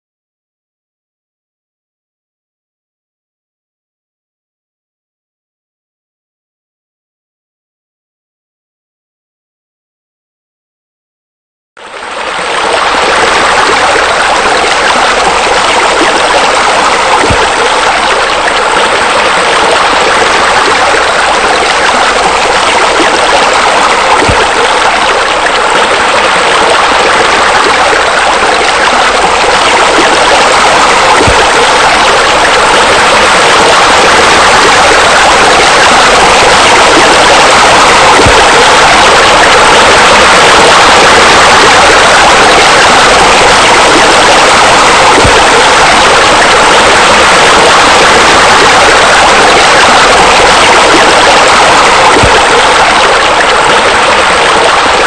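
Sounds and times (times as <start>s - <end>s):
waterfall rushing: 12.2s - 55.0s.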